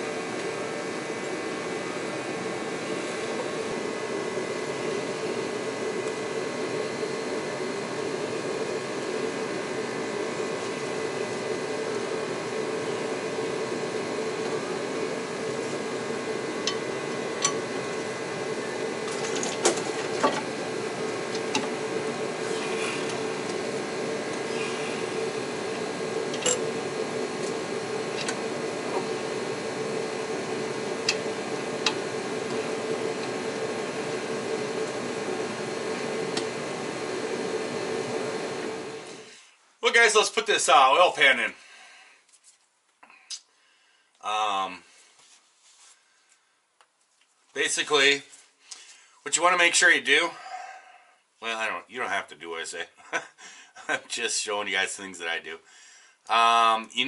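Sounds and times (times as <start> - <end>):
mechanical hum: 0.0 - 57.0.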